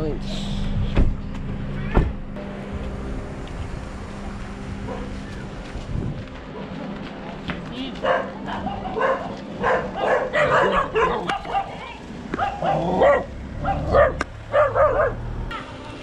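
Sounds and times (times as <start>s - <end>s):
dogs barking and yipping: 4.8s - 5.4s, 8.0s - 15.3s.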